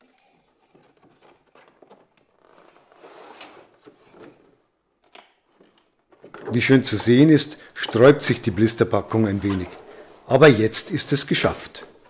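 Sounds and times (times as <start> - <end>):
plastic blister tray rustling: 0.0 - 4.6.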